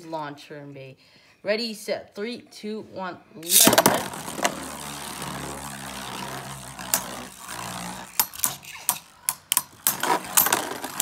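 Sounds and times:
spinning tops whirring: 0:03.5 - 0:11.0.

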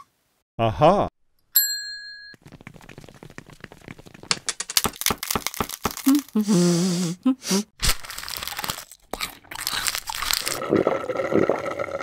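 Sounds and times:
crackling crinkling clicks: 0:04.2 - 0:06.3.

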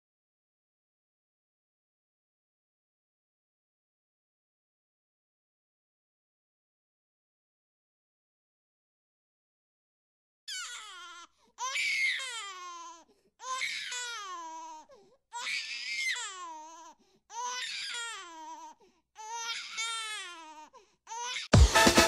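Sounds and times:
newborn baby crying: 0:10.5 - 0:21.6.

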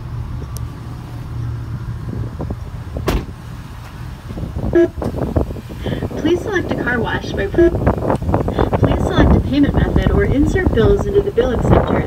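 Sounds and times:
car engine idling: 0:00.0 - 0:12.0
knocks and rustling: 0:02.4 - 0:04.0
car door opening click: 0:03.0 - 0:04.0.

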